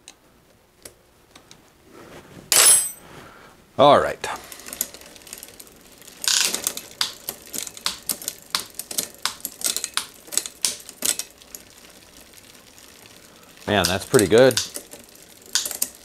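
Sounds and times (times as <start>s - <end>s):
bicycle chain and derailleur clicking: 4.5s - 16.0s
bicycle chain rattle: 4.5s - 16.0s.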